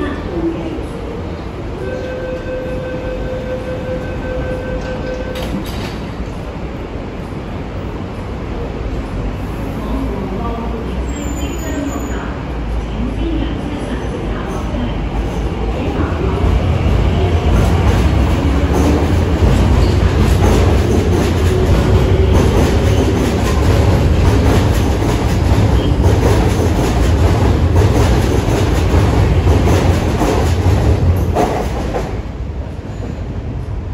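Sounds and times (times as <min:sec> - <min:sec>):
train rumbling: 0:00.0 - 0:33.9
train wheel clatter: 0:04.5 - 0:06.4, 0:17.2 - 0:32.3.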